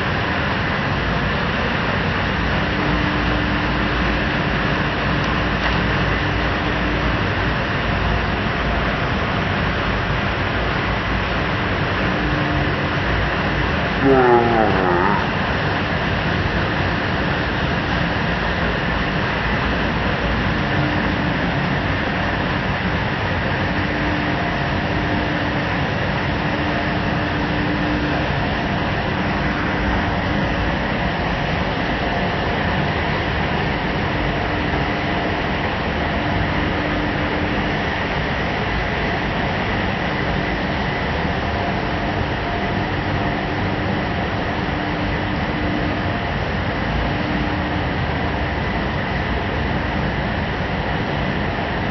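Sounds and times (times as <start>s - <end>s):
faint steady whine: 0.0s - 15.9s, 16.8s - 51.9s
faint hum: 13.8s - 15.8s.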